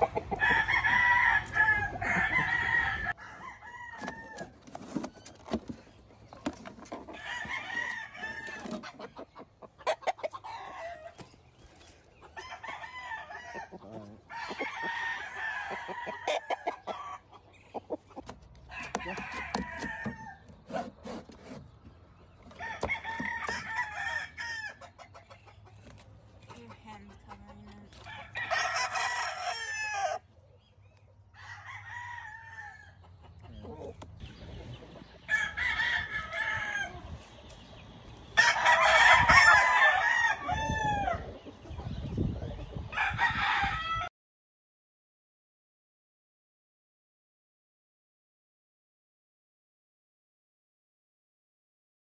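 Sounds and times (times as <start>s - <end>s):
roosters crowing: 0.0s - 5.8s, 6.4s - 17.4s, 18.2s - 25.2s, 27.6s - 30.4s, 31.3s - 44.1s.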